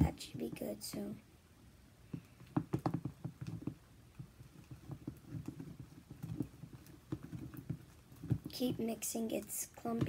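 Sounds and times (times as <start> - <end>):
spoon stirring slime: 2.1 - 10.0.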